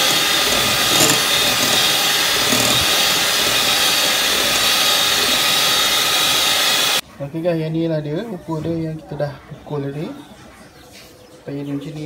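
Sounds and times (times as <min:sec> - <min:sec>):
electric hand mixer whipping: 0:00.0 - 0:07.0.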